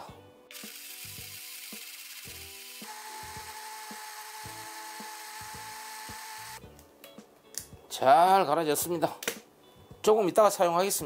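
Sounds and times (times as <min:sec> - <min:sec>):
blender motor whirring: 0:00.5 - 0:06.6.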